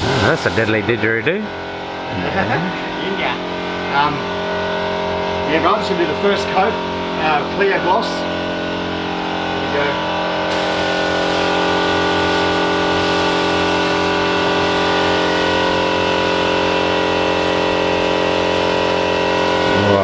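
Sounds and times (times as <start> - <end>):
spray gun hissing: 0.0 - 0.9, 10.5 - 19.8
air compressor humming: 0.0 - 20.0.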